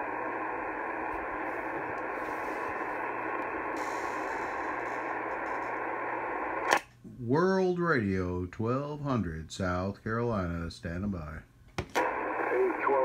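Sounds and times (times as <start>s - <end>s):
radio static hiss: 0.0s - 6.8s, 10.4s - 13.0s.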